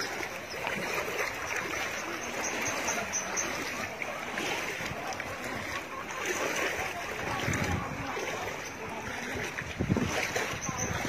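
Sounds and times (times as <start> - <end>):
people wading through water: 0.0 - 11.0.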